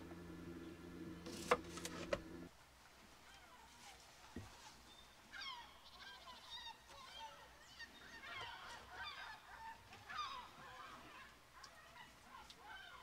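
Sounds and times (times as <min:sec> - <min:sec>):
faint birds calling: 0:03.2 - 0:13.0.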